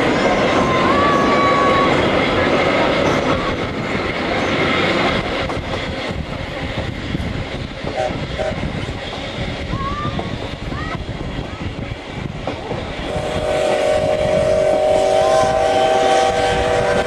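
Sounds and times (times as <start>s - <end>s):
steam train running: 0.0s - 17.0s
steam locomotive whistle blast: 13.1s - 17.0s.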